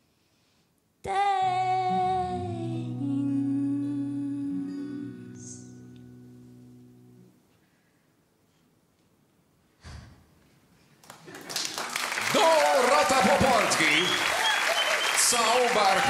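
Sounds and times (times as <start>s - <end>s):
applause: 11.0s - 16.0s.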